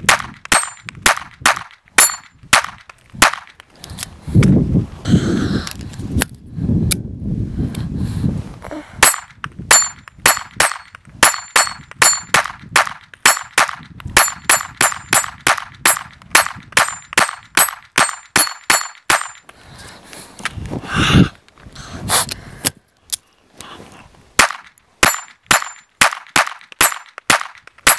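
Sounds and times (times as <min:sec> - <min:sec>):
steel plate targets ringing: 0:00.5 - 0:00.9, 0:02.0 - 0:02.4, 0:09.0 - 0:12.4, 0:13.2 - 0:13.6, 0:14.2 - 0:19.4, 0:24.4 - 0:25.9
pistol shots: 0:24.4 - 0:27.9.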